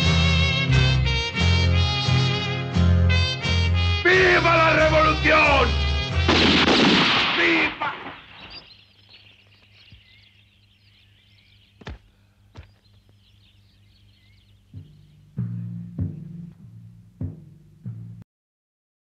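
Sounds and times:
loud music: 0.0 - 7.1
birds chirping: 4.0 - 18.1
gunshots: 6.3 - 8.6
film score with deep drum beats: 14.6 - 18.2.

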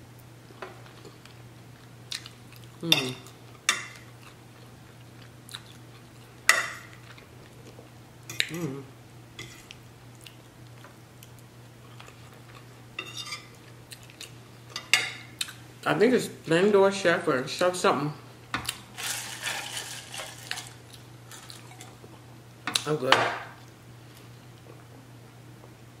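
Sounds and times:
low steady hum: 0.0 - 26.0
chewing and wet mouth noises: 0.9 - 8.7, 9.7 - 12.8, 13.6 - 14.4.

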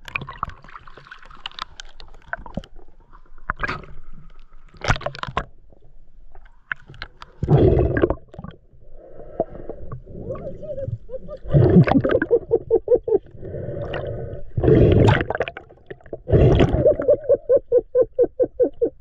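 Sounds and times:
underwater air bubbling: 7.3 - 19.0.

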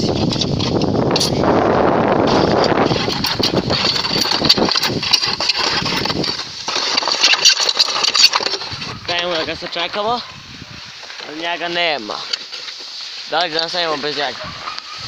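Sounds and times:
wind buffeting microphone: 0.0 - 6.8, 8.4 - 11.1, 14.0 - 15.0
sled scraping over snow: 0.0 - 15.0.

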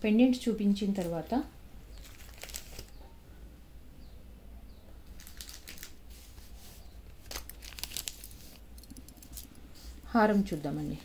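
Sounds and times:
jewellery pendants clicking and rustling: 7.9 - 9.6.

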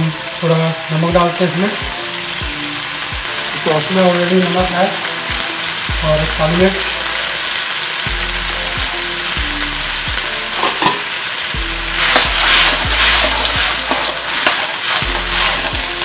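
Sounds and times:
vegetables sizzling in a wok: 0.0 - 16.0
metal ladle scraping wok: 10.5 - 11.2, 11.8 - 16.0.

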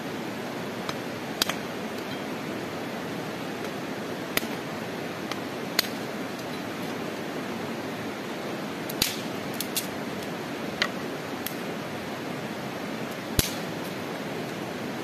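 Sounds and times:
steady rushing hiss: 0.0 - 15.0
sticks snapping: 0.9 - 1.6, 5.3 - 6.0, 8.9 - 9.9, 13.4 - 13.6.

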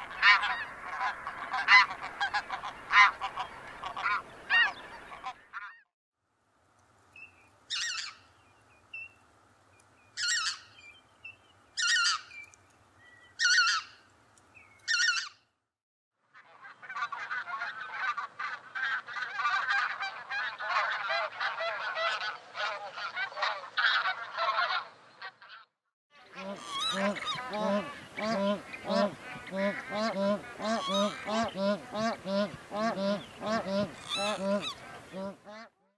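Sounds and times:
flock of geese honking: 0.0 - 5.8, 16.4 - 35.8
goose call: 0.0 - 5.8, 13.4 - 13.9, 16.4 - 25.7, 26.3 - 35.8
goose high squeaky yelps: 0.2 - 5.8, 10.2 - 10.7, 11.8 - 12.3, 13.4 - 13.9, 14.9 - 15.4, 16.6 - 25.7, 26.4 - 35.7.

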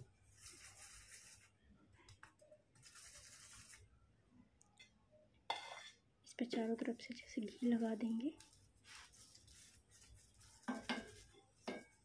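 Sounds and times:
spoon scraping on hot griddle: 8.8 - 12.0.

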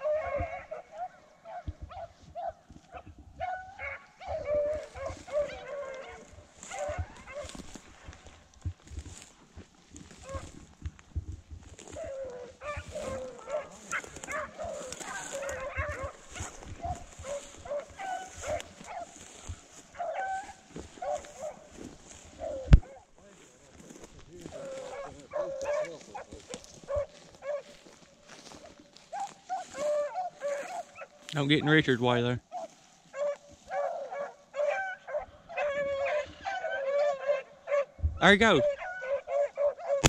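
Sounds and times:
hounds baying: 0.0 - 40.0.

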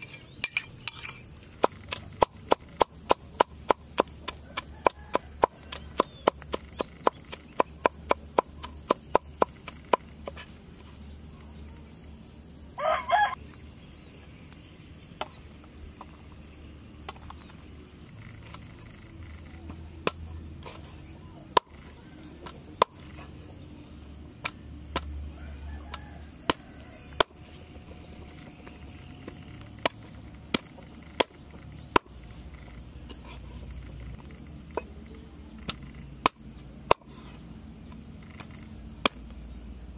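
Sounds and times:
cleaver chopping on wooden block: 1.5 - 10.5, 21.5 - 23.2, 24.4 - 25.2, 29.2 - 32.2, 35.6 - 37.3, 39.0 - 39.3.

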